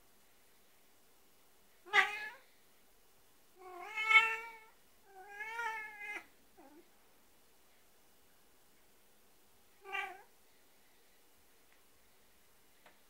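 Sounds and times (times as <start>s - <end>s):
cat meowing: 1.9s - 2.4s, 3.6s - 6.8s, 9.8s - 10.3s.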